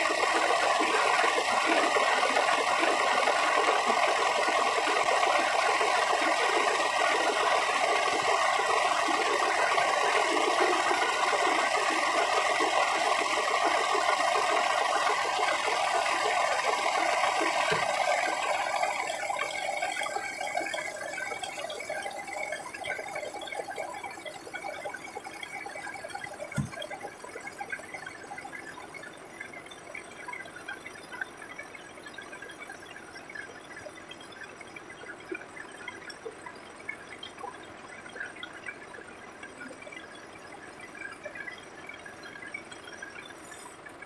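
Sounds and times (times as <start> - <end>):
truck engine and winch rattling: 0.0 - 22.2.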